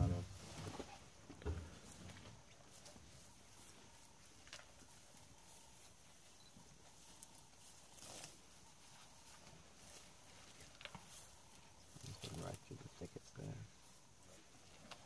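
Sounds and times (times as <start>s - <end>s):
elephant feeding rustles: 0.0s - 15.0s.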